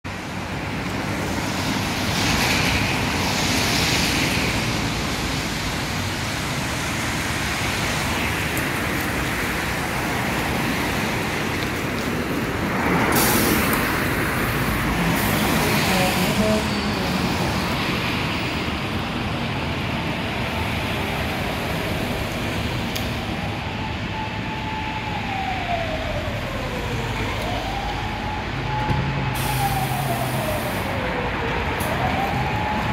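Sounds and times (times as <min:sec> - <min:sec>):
traffic: 0:00.0 - 0:32.9
tyre hiss on wet road: 0:01.5 - 0:16.4, 0:29.4 - 0:30.9
loud hiss of air brakes: 0:13.1 - 0:13.7, 0:29.2 - 0:30.9.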